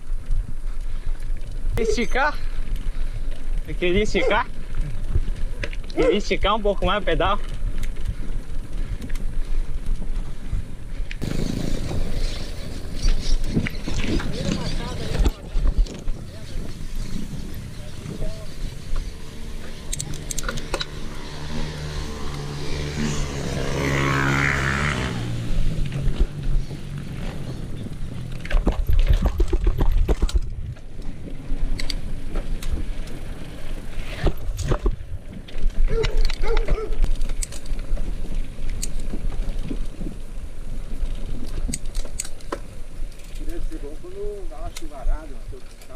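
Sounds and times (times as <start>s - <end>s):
wind buffeting microphone: 0.0s - 41.9s
bike clicks and rattles: 0.0s - 45.9s
bike rattling over cobblestones: 0.0s - 45.9s
bike tyres rumbling on dirt: 0.0s - 45.9s.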